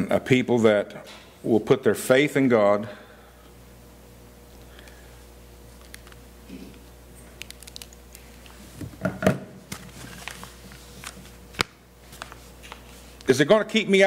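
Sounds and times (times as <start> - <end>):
faint steady hum: 0.0 - 14.0
paper rustling and turning: 9.7 - 13.2.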